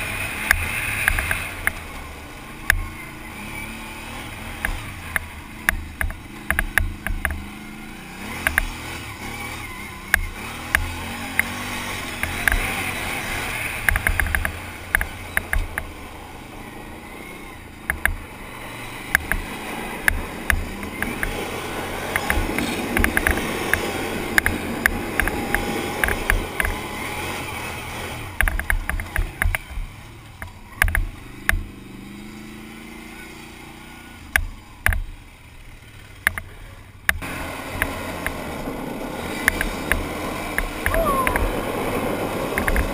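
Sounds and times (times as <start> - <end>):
quad bike engine: 0.0 - 42.9
sharp knocks and clicks: 4.6 - 7.4, 8.4 - 8.8, 10.1 - 12.7, 13.8 - 15.9, 17.8 - 18.2, 19.1 - 21.4, 22.1 - 26.8, 28.4 - 31.7, 34.3 - 35.1, 36.2 - 37.2, 39.4 - 41.5, 42.6 - 42.9.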